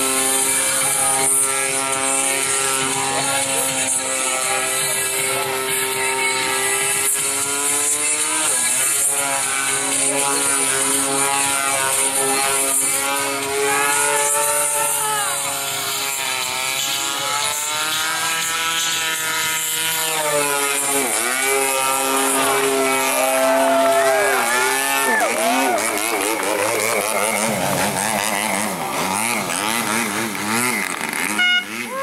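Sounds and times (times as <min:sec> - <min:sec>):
model airplane engine and propeller: 0:00.0 - 0:32.0.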